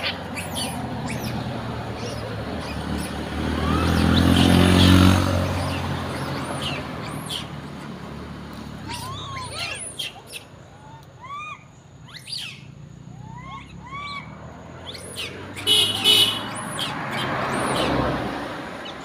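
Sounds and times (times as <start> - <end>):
high chirping animal calls: 0.0 - 7.9, 8.8 - 19.0
shrill squeals: 2.0 - 7.5, 8.8 - 12.6.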